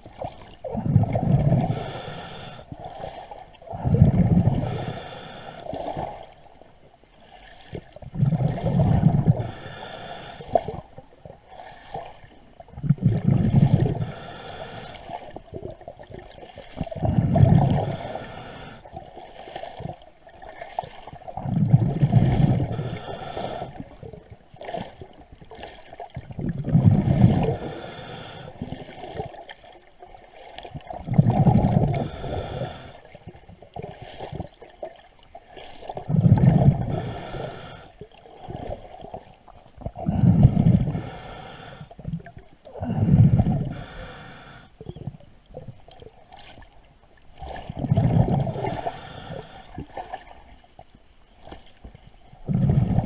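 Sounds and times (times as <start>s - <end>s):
exhaled bubbles gushing underwater: 0.0s - 6.4s, 7.5s - 44.2s, 44.8s - 46.6s, 47.3s - 50.5s, 52.3s - 53.0s
regulator inhale hiss: 1.7s - 2.7s, 4.6s - 5.8s, 9.4s - 10.7s, 14.0s - 15.2s, 17.8s - 18.9s, 22.6s - 23.8s, 27.5s - 28.6s, 32.0s - 33.2s, 36.8s - 38.0s, 40.8s - 42.0s, 43.6s - 44.8s, 48.6s - 49.8s.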